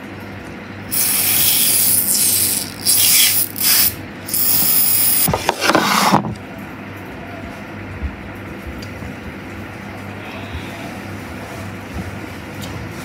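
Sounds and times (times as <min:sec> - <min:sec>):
aerosol spray hissing: 0:00.9 - 0:05.3.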